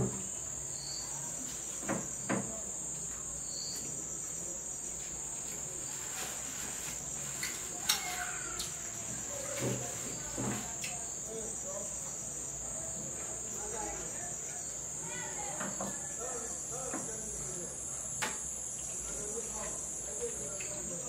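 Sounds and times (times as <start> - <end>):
insects chirring: 0.0 - 21.0.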